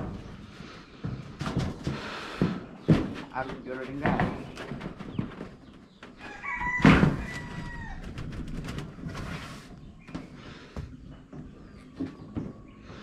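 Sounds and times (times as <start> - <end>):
rooster crowing: 6.2 - 8.2.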